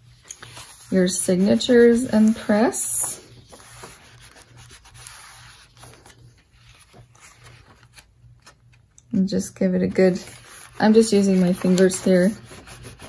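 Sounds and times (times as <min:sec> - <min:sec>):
pages rustling: 0:00.0 - 0:08.9, 0:09.9 - 0:13.0
fingers rubbing paper: 0:10.1 - 0:13.0.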